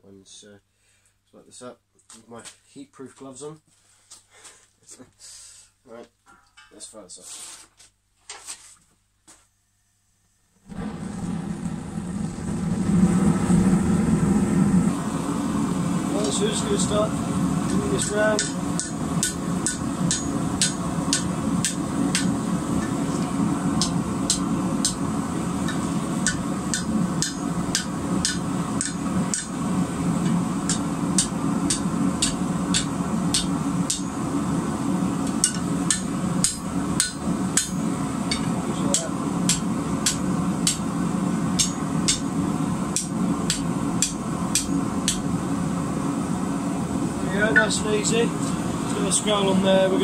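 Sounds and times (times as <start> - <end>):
forge running: 10.6 - 50.0
hammer striking steel on anvil: 17.7 - 23.0, 25.7 - 29.6, 30.7 - 34.2, 35.3 - 40.9, 41.6 - 42.3, 42.9 - 45.3.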